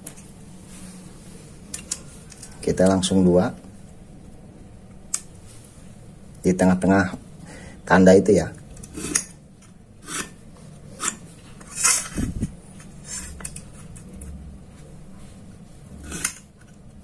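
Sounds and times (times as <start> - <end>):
marking tool scratching steel: 10.0 - 12.2.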